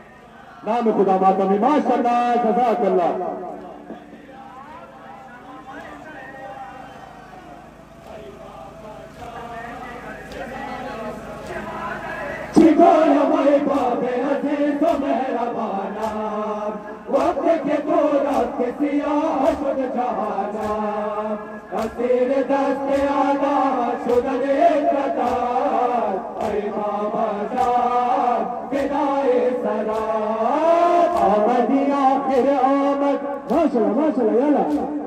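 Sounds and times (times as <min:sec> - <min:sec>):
men chanting: 0:00.0 - 0:35.0
sharp rhythmic strikes: 0:12.6 - 0:35.0.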